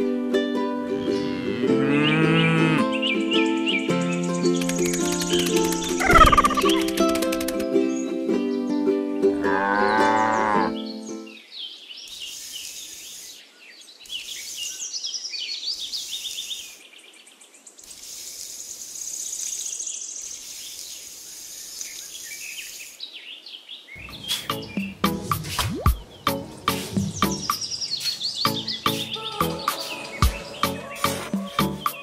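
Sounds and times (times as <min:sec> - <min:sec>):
birds chirping: 0:01.0 - 0:08.7, 0:09.3 - 0:32.0
steady hiss: 0:12.0 - 0:15.0, 0:15.6 - 0:16.9, 0:17.7 - 0:23.1, 0:24.0 - 0:31.4
musical phrase: 0:24.0 - 0:27.7, 0:28.4 - 0:32.0.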